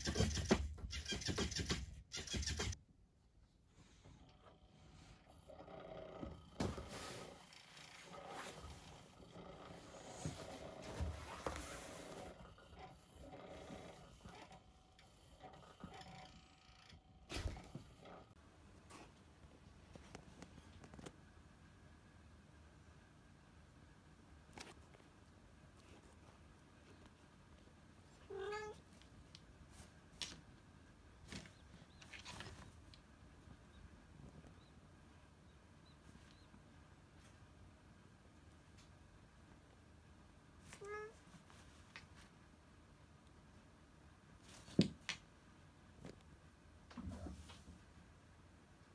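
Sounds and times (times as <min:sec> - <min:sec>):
cat meowing: 0:28.3 - 0:28.8, 0:40.8 - 0:41.2.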